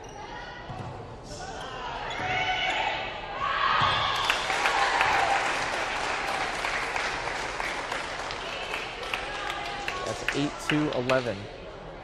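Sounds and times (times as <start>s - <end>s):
people clapping: 4.2s - 11.4s.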